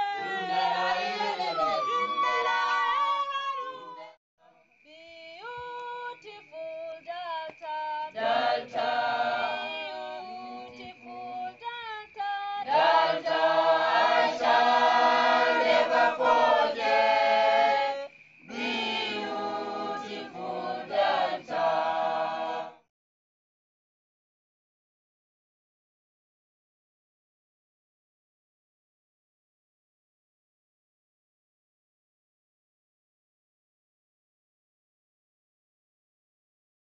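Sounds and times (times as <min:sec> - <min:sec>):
group of people singing: 0:00.0 - 0:04.1, 0:07.7 - 0:22.9.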